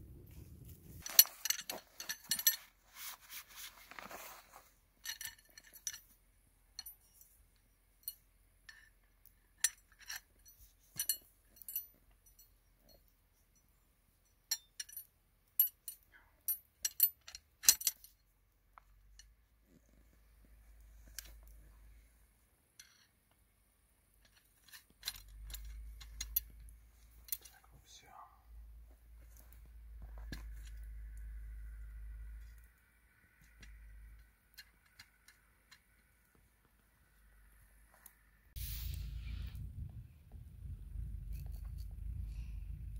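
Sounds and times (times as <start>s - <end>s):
metal poles clinking: 1.0s - 18.2s, 22.8s - 23.1s, 24.2s - 27.7s.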